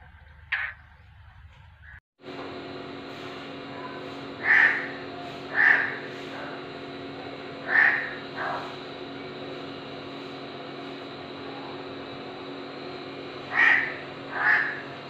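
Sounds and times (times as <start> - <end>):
steady background hum: 0.0 - 15.0
crow cawing: 0.5 - 0.8, 4.4 - 6.1, 7.6 - 8.2, 13.5 - 14.9.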